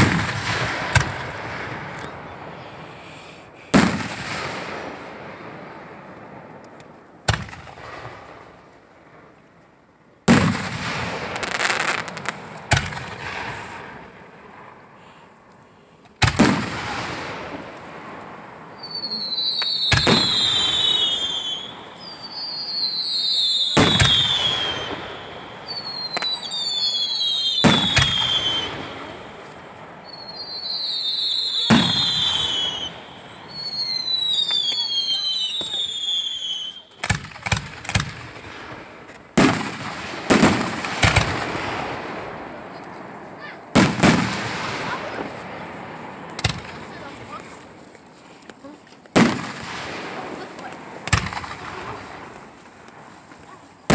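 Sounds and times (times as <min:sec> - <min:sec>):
sharp firework bangs: 0:00.0 - 0:02.6, 0:03.2 - 0:05.8, 0:07.2 - 0:08.5, 0:10.2 - 0:14.3, 0:16.2 - 0:36.2, 0:37.0 - 0:47.4, 0:49.1 - 0:53.0
firework burst: 0:00.0 - 0:05.5, 0:10.3 - 0:15.2, 0:16.2 - 0:47.4
firework whistle falling in pitch: 0:18.8 - 0:29.1, 0:30.0 - 0:36.9.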